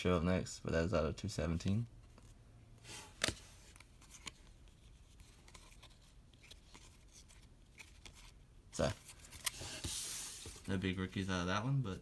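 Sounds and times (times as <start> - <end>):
cards sliding and rubbing: 2.2 - 10.8.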